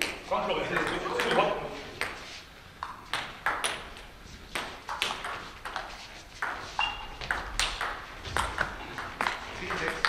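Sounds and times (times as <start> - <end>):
brief high squeak: 6.8 - 7.2.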